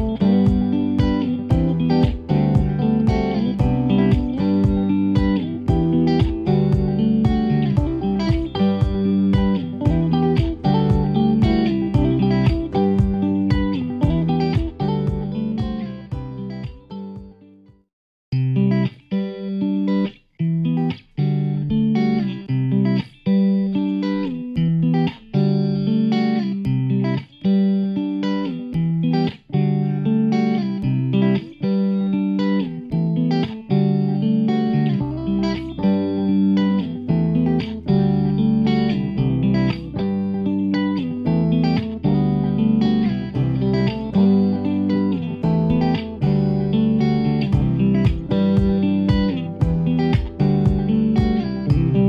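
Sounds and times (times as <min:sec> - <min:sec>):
deeper bass part: 0:00.0 - 0:17.4, 0:41.3 - 0:52.0
short pitched notes: 0:43.3 - 0:52.0.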